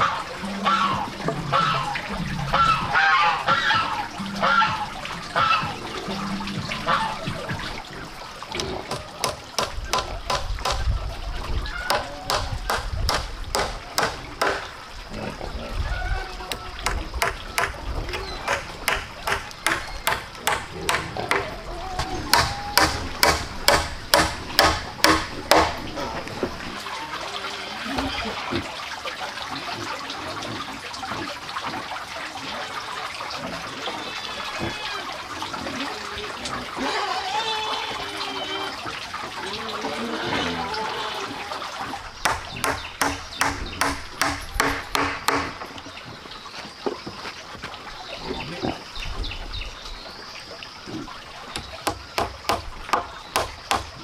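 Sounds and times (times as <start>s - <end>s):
hammer driving nails into wood: 12.3s - 14.7s, 22.4s - 25.7s, 42.3s - 45.6s.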